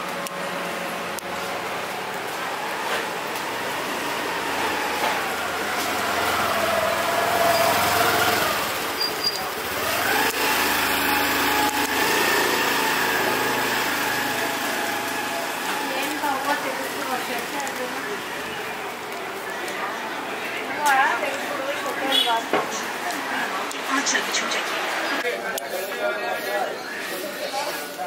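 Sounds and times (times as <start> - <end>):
motor scooter engine revving: 0.0 - 18.8.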